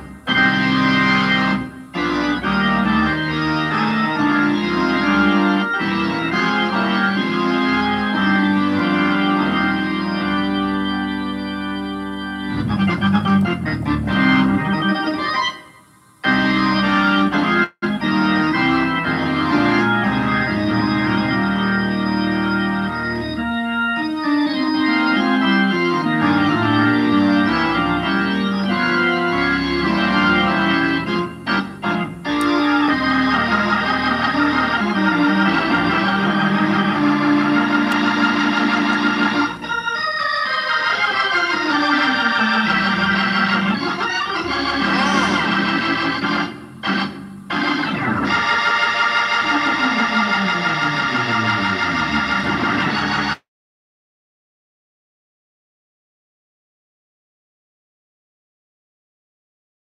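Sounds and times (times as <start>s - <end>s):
organ playing chords: 0.0s - 53.4s.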